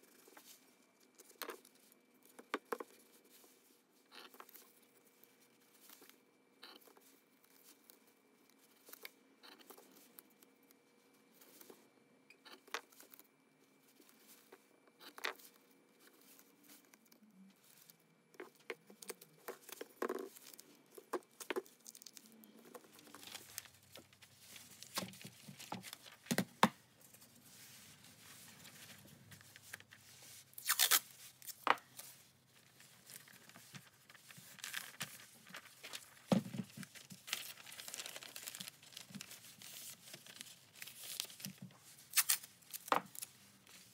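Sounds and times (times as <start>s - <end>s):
paper crinkling: 12.8s - 43.9s
masking tape tearing: 30.5s - 31.6s, 42.1s - 43.3s.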